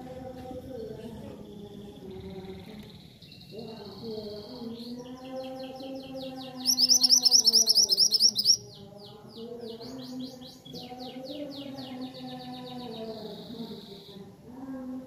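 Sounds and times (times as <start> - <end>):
bird singing high notes and trills: 5.0 - 8.9.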